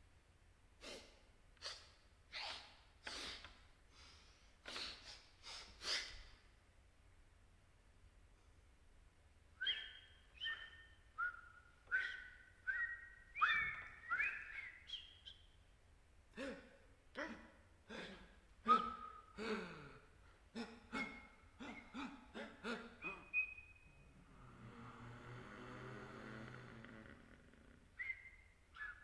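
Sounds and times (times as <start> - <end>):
whistle-like tones: 9.6 - 15.5, 18.7 - 19.4, 23.0 - 24.2, 28.0 - 29.0.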